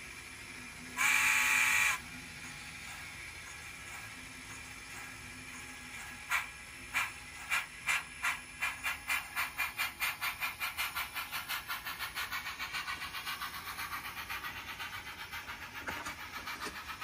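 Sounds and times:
model steam locomotive chuffs: 0.0 - 17.0.

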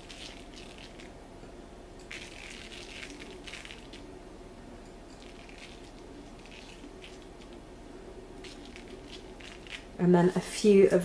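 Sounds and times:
nuts pattering onto pastry: 0.0 - 1.1, 2.0 - 4.1, 5.2 - 7.6, 8.4 - 10.0.

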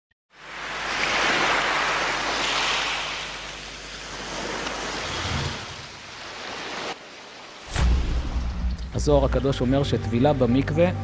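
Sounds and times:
surf-like rushing water: 0.3 - 8.4
low boom: 7.7 - 9.4.

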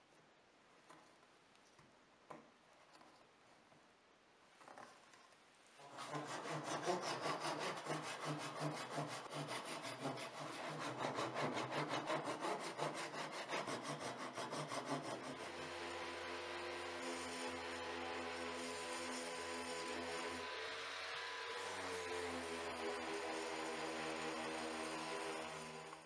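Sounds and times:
hand saw cutting wood: 5.8 - 26.0.

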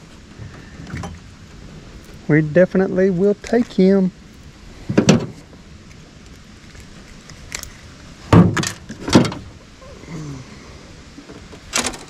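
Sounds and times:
knocks and clatters in boat: 0.3 - 1.2, 4.9 - 5.4, 8.3 - 9.6.

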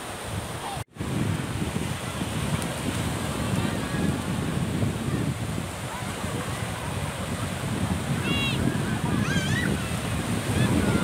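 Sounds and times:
surf breaking on beach: 0.0 - 11.0
wind buffeting microphone: 0.1 - 11.0
children calling: 8.2 - 11.0.

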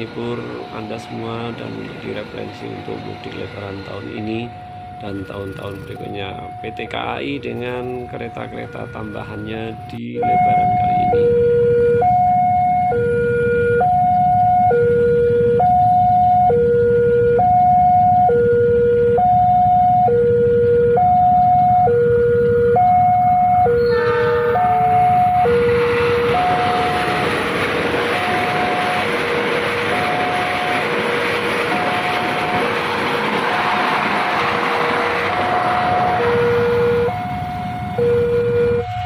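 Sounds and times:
passing train rushing: 0.0 - 11.2, 20.3 - 39.0
two-tone level crossing alarm: 0.0 - 39.0.

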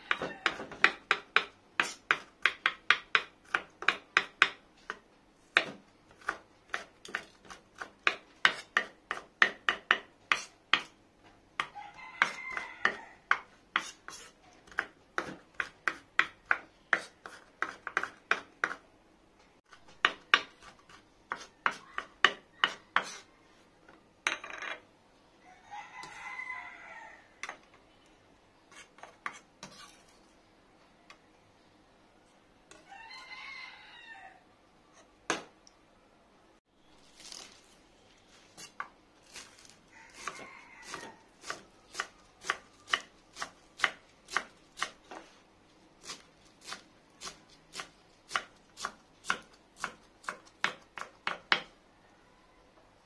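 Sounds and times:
knife chopping on wooden board: 5.6 - 10.9, 19.9 - 23.2, 40.2 - 45.2, 46.0 - 51.7.

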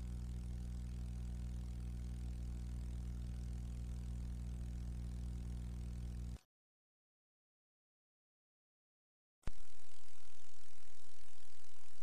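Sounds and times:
low electrical hum: 0.0 - 6.5, 9.5 - 12.0.

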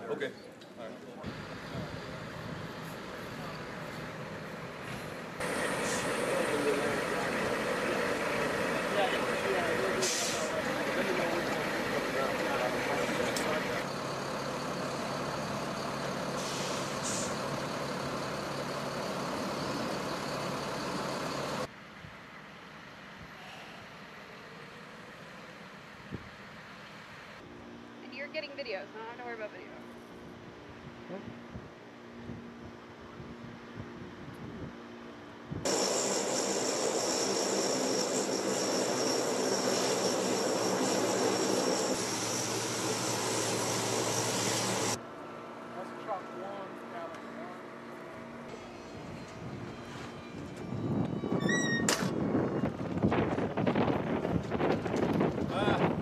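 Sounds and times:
diesel truck engines idling: 1.2 - 21.7
high-pitched turbine whine: 1.2 - 21.7, 33.8 - 56.0
propeller drone: 1.2 - 21.7, 34.9 - 56.0
brief hiss: 4.9 - 6.3, 10.0 - 10.6, 16.4 - 17.4.

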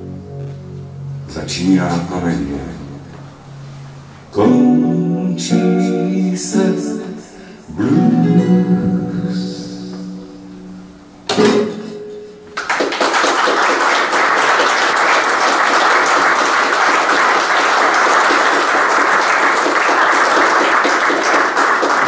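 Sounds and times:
guitar note: 0.0 - 6.0, 7.4 - 12.7
audience applauding: 12.6 - 22.0.

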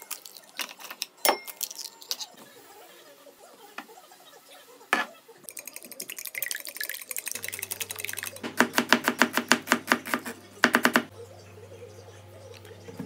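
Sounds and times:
eggs beaten in glass bowl: 5.5 - 11.1
knife chopping on plastic board: 8.4 - 11.1.

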